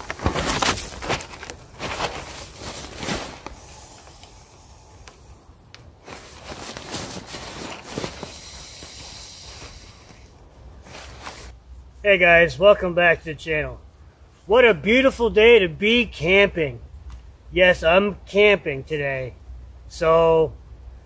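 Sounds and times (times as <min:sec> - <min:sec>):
dry leaves crunching underfoot: 0:00.0 - 0:04.0, 0:06.0 - 0:08.9.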